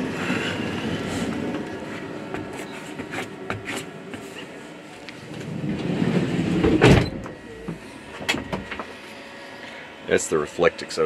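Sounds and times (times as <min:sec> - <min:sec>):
sliding van door rolling and thudding: 0:05.2 - 0:07.4.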